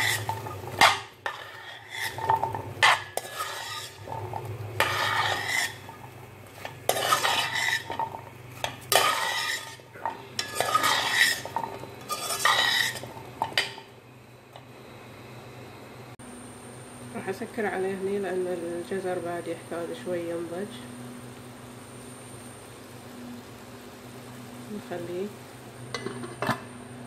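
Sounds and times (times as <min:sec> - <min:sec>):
metal spatula scraping pan: 0:00.0 - 0:13.8.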